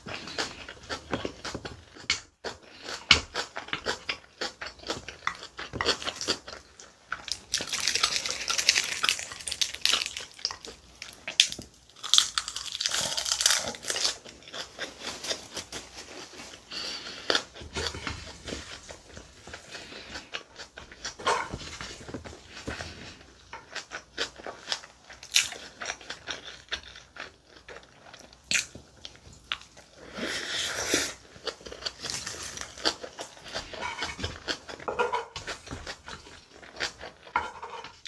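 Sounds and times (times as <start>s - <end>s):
open-mouthed chewing: 0.0s - 37.4s
crisp seaweed crackling: 7.4s - 10.6s
wooden spoon scraping a bowl: 37.3s - 38.0s.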